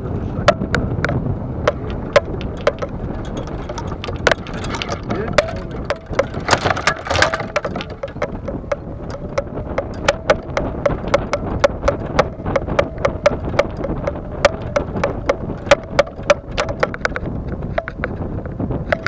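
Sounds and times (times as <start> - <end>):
golf clubs rattling in bag: 1.7 - 19.0.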